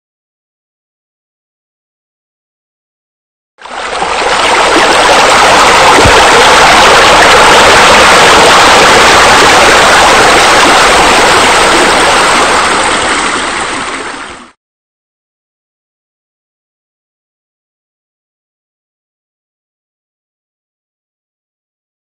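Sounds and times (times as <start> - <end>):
falling splashing water: 3.6 - 14.6.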